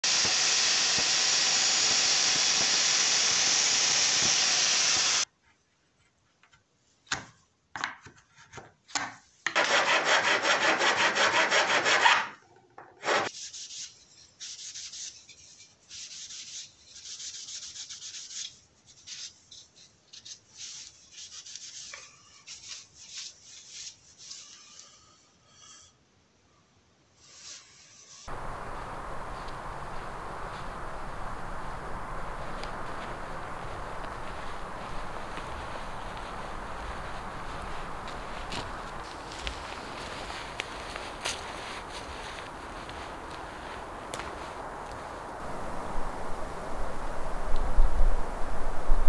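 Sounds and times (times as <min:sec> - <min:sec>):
wood sanded by hand: 0:00.0 - 0:05.2, 0:09.6 - 0:12.3, 0:13.0 - 0:19.5, 0:31.4 - 0:45.0.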